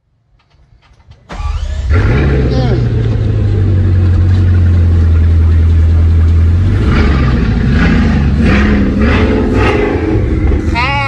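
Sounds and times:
car engine idling: 0.1 - 11.0
voices: 2.3 - 3.5, 9.2 - 11.0.

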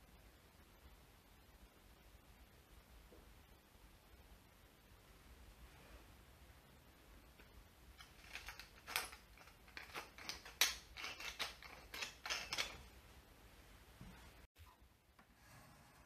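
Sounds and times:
pepper mill grinding: 7.9 - 12.9.

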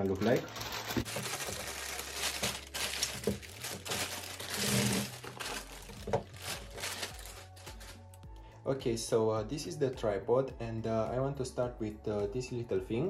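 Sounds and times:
plastic bag crinkling and rustling: 0.0 - 8.1.

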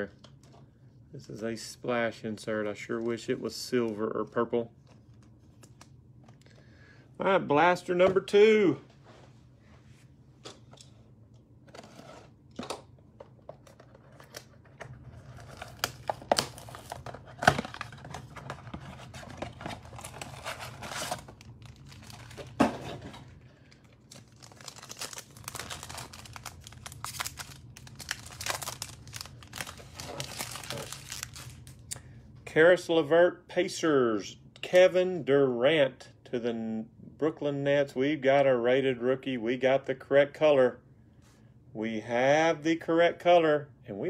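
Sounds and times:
foil wrappers crinkling: 13.7 - 31.8.

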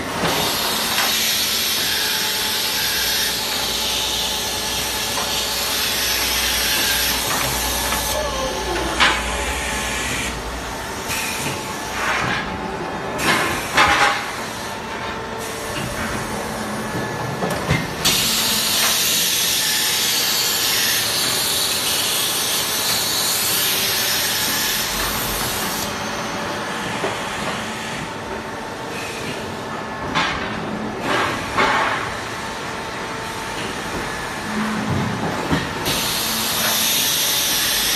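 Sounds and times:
machine air system hissing: 35.8 - 37.9.

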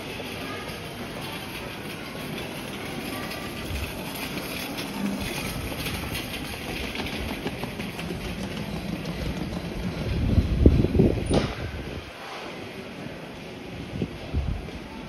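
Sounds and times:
shopping arcade din: 0.0 - 13.7
wind rumble on microphone: 9.1 - 12.1, 13.7 - 15.0.

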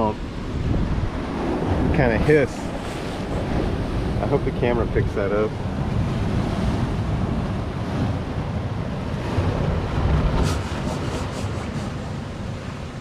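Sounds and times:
surf: 0.0 - 13.0
wind rumbling on microphone: 0.0 - 13.0
air hissing from rock crevice: 10.4 - 12.2.

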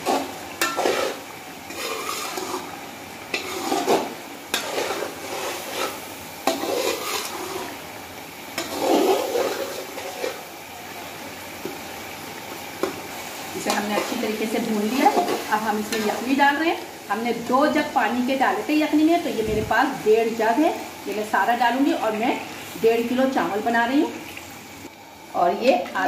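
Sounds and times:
metal spoon scraping a pot: 0.0 - 2.7, 3.3 - 7.8
meat sizzling: 0.0 - 26.0.

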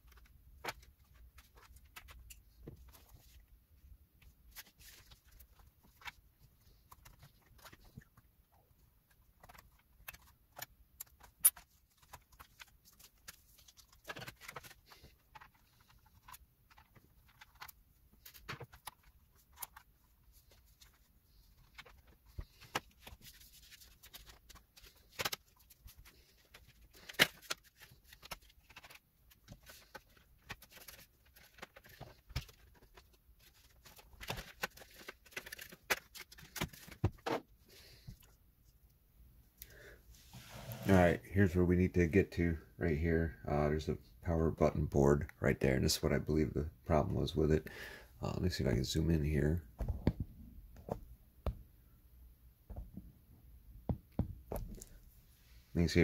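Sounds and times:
laptop parts clicking and tapping: 9.1 - 19.9.

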